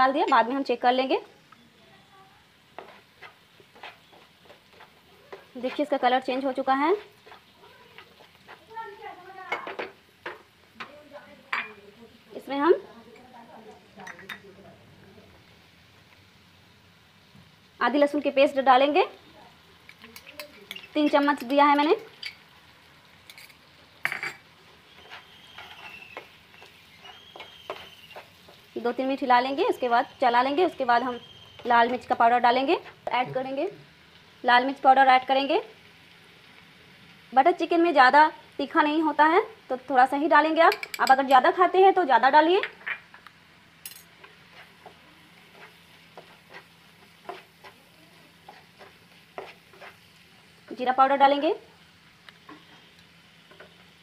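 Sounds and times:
faint oil sizzling: 0.0 - 54.0
spoon scraping across pan: 2.6 - 10.5, 23.2 - 33.5, 43.8 - 50.5, 52.3 - 54.0
spoon clinking against pan: 40.7 - 41.2.

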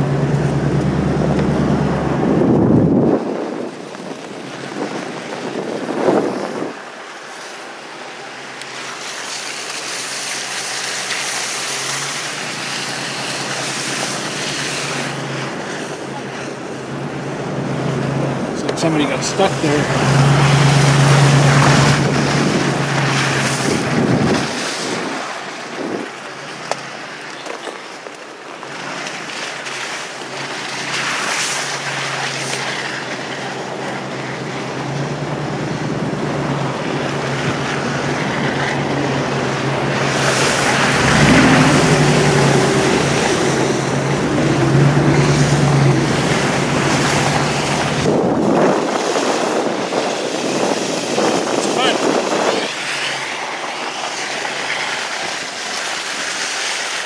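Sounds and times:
wind noise on microphone: 0.0 - 7.0, 12.1 - 26.4, 33.0 - 56.4
truck engine hum: 0.0 - 57.0
tyres splashing through slush: 0.0 - 57.0.

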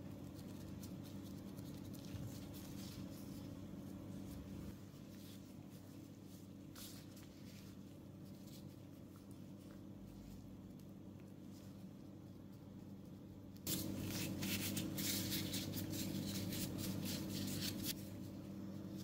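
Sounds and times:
plastic gloves rustling on dough: 0.0 - 19.0
steady low hum: 0.0 - 19.0.

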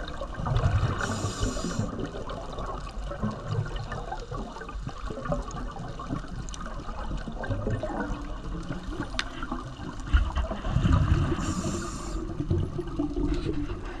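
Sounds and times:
low water rumble: 0.0 - 14.0
rush of bubbles: 0.0 - 14.0
underwater crackle of clicks: 0.5 - 10.7.

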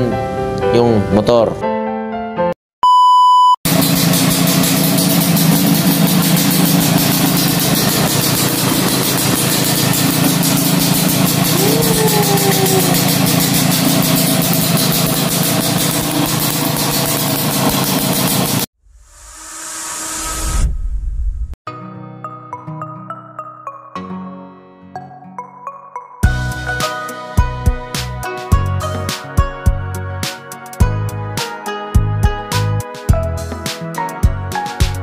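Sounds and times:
two-stroke motorcycle engine idling: 3.7 - 18.6.

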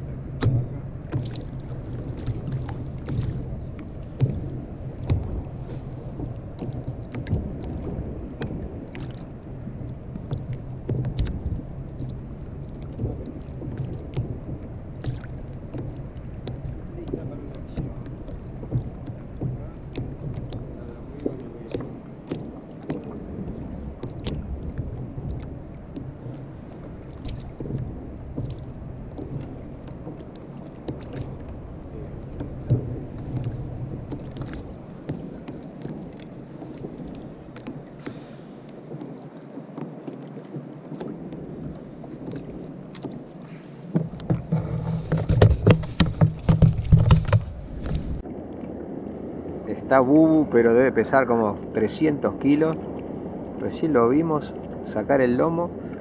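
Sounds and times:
low hum: 0.0 - 39.2
water sloshing against kayak hull: 0.0 - 56.0
wind on the microphone: 0.0 - 56.0.

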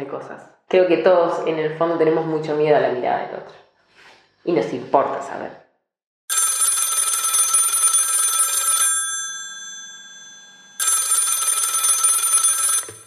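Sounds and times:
telephone bell ringing: 6.3 - 13.0.

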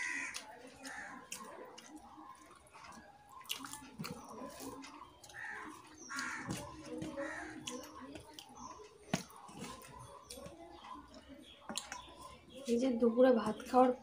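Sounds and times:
fingers squishing rice on plate: 0.0 - 12.9.

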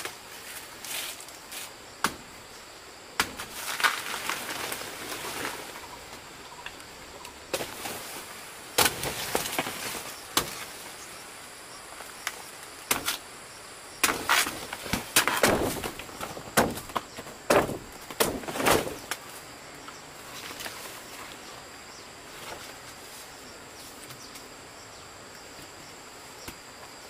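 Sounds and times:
rustling: 0.0 - 2.2, 3.2 - 11.1.

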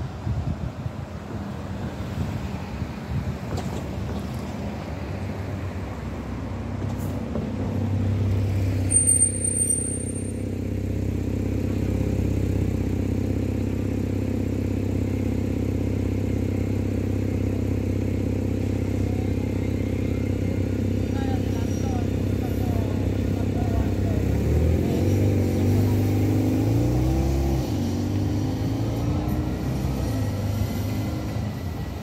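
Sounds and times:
high squeak: 8.8 - 10.5.

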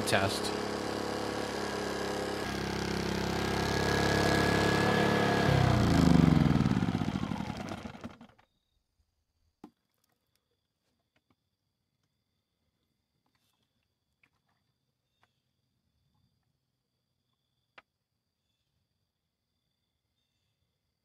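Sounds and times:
generator engine running and winding down: 0.0 - 8.4.

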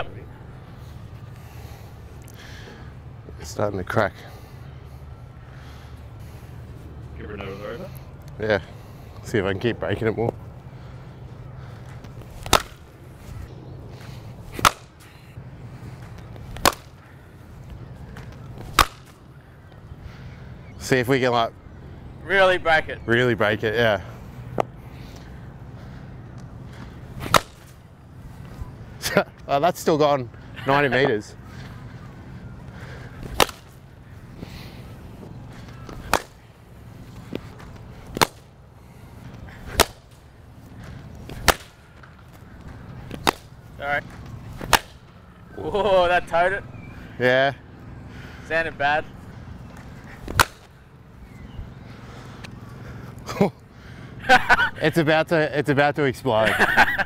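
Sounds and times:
cricket bat striking ball: 12.4 - 12.8, 14.6 - 14.9, 16.6 - 16.9, 18.7 - 19.1, 27.3 - 27.7, 33.3 - 33.8, 36.0 - 36.4, 41.4 - 41.8, 43.1 - 43.5, 44.6 - 45.0, 50.3 - 50.7.

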